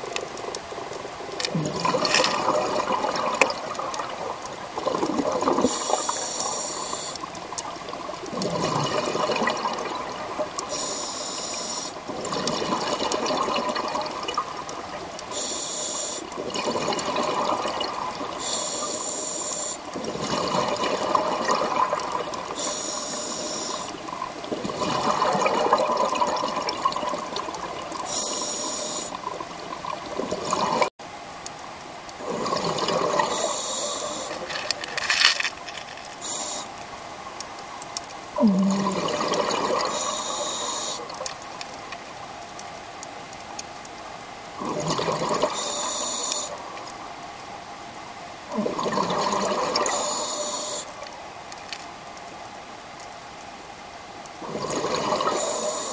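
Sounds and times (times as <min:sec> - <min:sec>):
exhaled bubbles underwater: 0:00.0 - 0:30.9, 0:32.2 - 0:34.8, 0:38.3 - 0:41.7, 0:44.5 - 0:47.0, 0:48.5 - 0:51.0, 0:54.4 - 0:55.9
regulator inhalation hiss: 0:05.6 - 0:07.2, 0:10.7 - 0:12.0, 0:15.3 - 0:16.3, 0:18.4 - 0:19.8, 0:22.6 - 0:24.0, 0:28.1 - 0:29.2, 0:33.3 - 0:34.4, 0:36.2 - 0:36.7, 0:39.9 - 0:41.1, 0:45.5 - 0:46.6, 0:49.9 - 0:51.0, 0:55.4 - 0:55.9.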